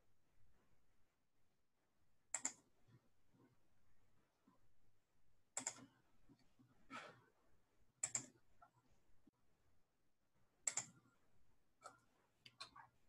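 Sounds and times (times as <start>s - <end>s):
faint computer clicking: 2.3s - 2.7s, 5.6s - 6.0s, 8.0s - 8.8s, 10.6s - 11.1s, 11.8s - 13.0s.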